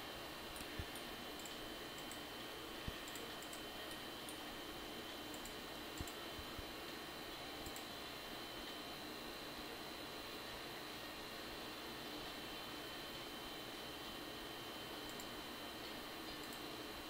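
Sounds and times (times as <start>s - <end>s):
computer mouse clicks: 0.5s - 2.3s, 2.9s - 4.5s, 5.2s - 6.4s, 7.6s - 7.9s, 15.0s - 16.8s.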